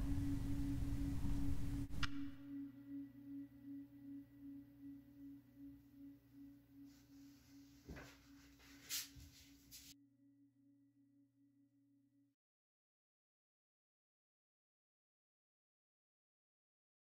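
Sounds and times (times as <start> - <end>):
sustained low ringing tone: 0.0 - 12.4
soft click: 2.0 - 2.4.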